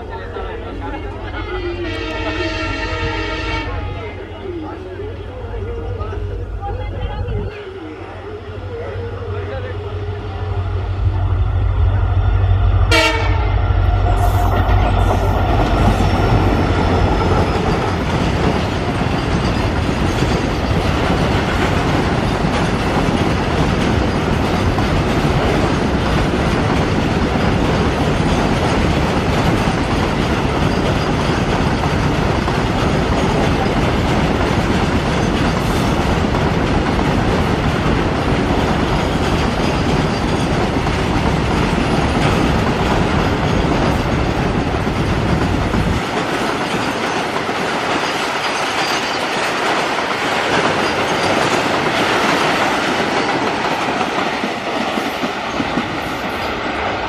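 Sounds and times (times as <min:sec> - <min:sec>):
diesel locomotive engine hum: 0:00.0 - 0:47.5
train horn: 0:01.4 - 0:04.0, 0:12.8 - 0:15.1.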